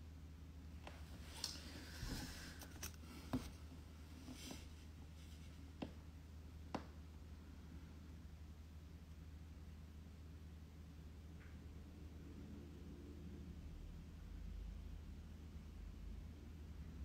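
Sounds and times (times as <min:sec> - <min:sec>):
faint steady hum: 0:00.0 - 0:17.0
clothing rustling near microphone: 0:00.9 - 0:05.8.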